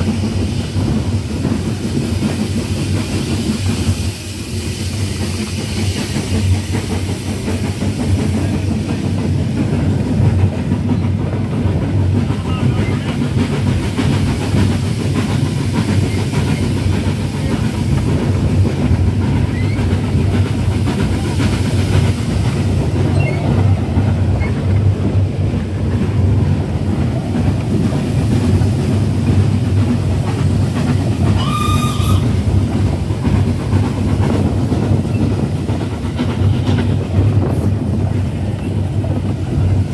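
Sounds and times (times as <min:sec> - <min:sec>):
train wheels rumbling on rails: 0:00.0 - 0:39.9
steam whistle blast: 0:31.4 - 0:32.4.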